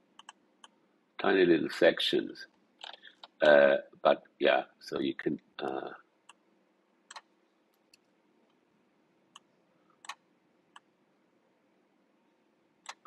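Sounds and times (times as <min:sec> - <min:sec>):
computer mouse clicks: 0:00.2 - 0:00.8, 0:07.1 - 0:08.6, 0:09.3 - 0:10.9.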